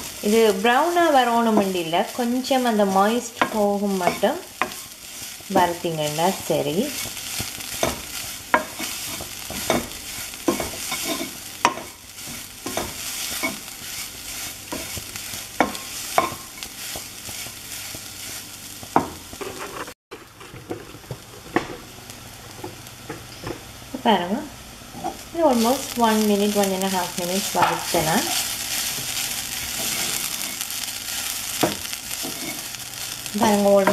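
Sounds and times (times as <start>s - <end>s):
light frying hiss: 0.0s - 33.9s
wooden spoon scraping a pot: 3.1s - 21.6s, 27.4s - 33.9s.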